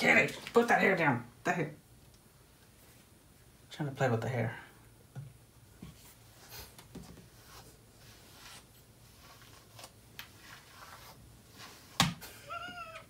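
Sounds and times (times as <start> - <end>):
brush stroking cat fur: 5.9 - 12.0.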